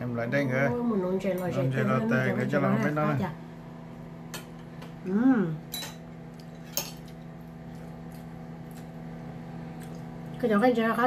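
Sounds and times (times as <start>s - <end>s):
cutlery clinking against dishes: 5.7s - 7.2s.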